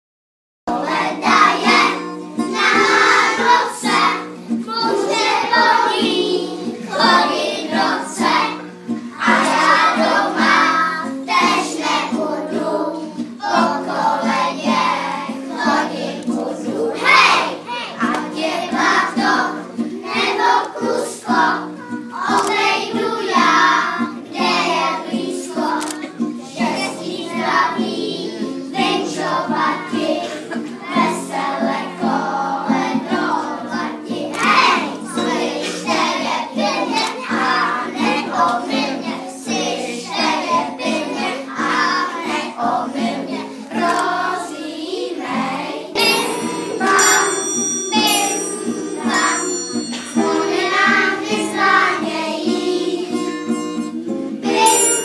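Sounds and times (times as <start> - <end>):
children singing in unison: 0.7 - 54.8
held instrumental notes: 45.9 - 55.0.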